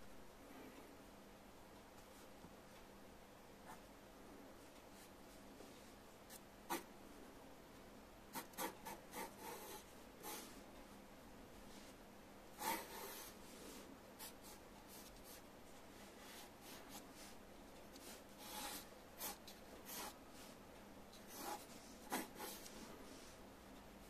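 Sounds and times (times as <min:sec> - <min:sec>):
pencil scratching on paper: 0:06.3 - 0:06.9, 0:08.3 - 0:10.6, 0:12.6 - 0:13.6, 0:16.0 - 0:20.6, 0:21.2 - 0:23.4.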